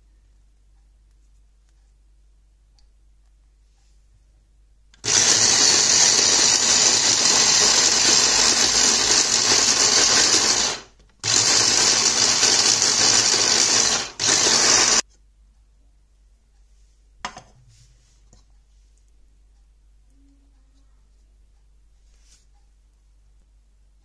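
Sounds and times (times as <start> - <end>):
electric food chopper running: 5.0 - 15.0.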